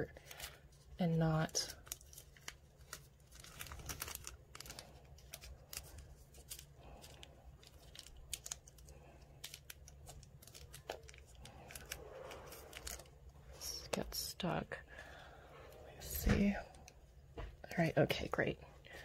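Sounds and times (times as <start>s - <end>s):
gloves and tape crackling: 0.0s - 14.4s
low steady hum: 0.0s - 19.0s.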